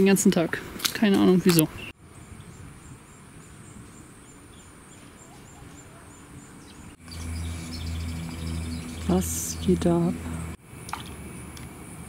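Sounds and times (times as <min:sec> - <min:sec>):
high-pitched chirp: 0:06.6 - 0:10.6
low uneven rumble: 0:06.6 - 0:12.0
low steady hum: 0:06.9 - 0:12.0.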